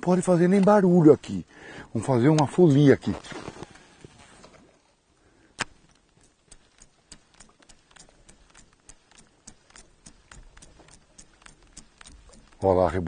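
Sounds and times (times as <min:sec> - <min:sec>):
sharp clicks: 0:05.6 - 0:12.7.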